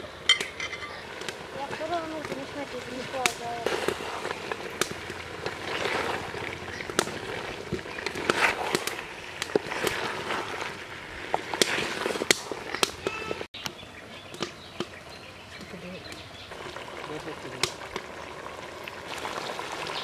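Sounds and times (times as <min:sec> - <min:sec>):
crackles and pops of frying: 0:00.0 - 0:20.0
wooden spatula scraping a pot: 0:01.2 - 0:13.5.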